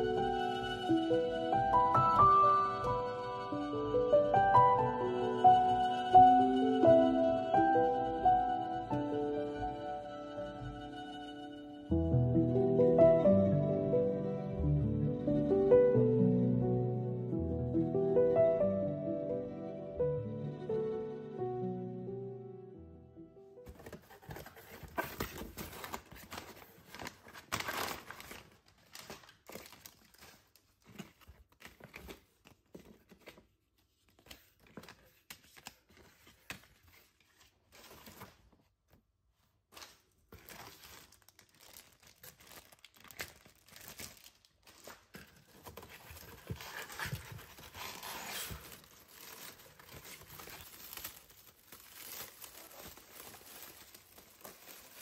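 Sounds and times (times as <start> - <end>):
packing paper crinkling: 23.6 - 38.6, 39.7 - 55.0.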